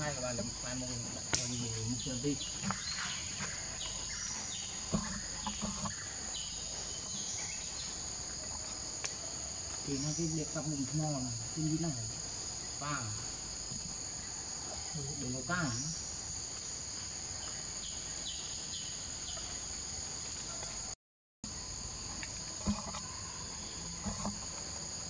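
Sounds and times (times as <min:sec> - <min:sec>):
people talking: 0:00.0 - 0:02.4
insects droning: 0:00.0 - 0:25.0.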